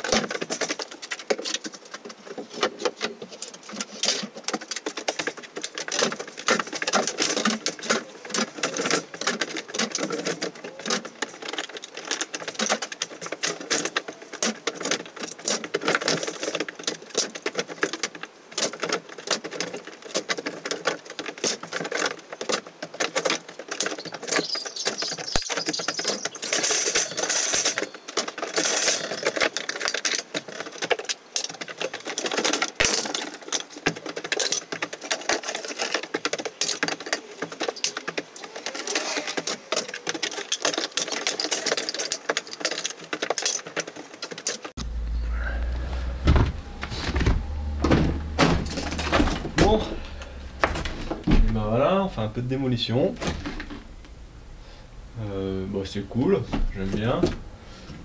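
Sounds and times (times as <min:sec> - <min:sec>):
rubble being dropped: 0:00.0 - 0:54.8
wooden floorboards knocking and scraping: 0:44.6 - 0:52.3.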